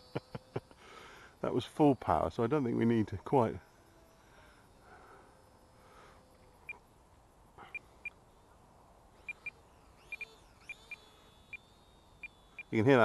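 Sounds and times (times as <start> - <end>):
short high beeps: 9.3 - 12.7.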